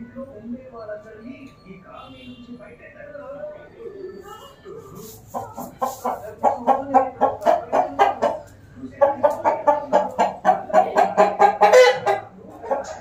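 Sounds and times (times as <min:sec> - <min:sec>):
chicken clucking: 0:03.9 - 0:13.0.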